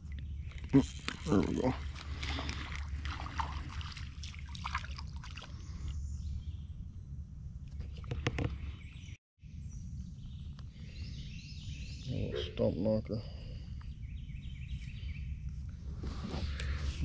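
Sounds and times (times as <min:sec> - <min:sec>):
fish splashing at water surface: 0:01.8 - 0:05.6.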